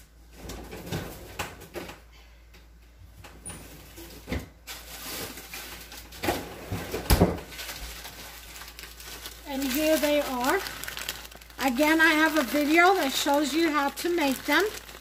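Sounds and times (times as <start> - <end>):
freezer door opening: 3.4 - 7.7
frozen packages knocking: 7.0 - 15.0.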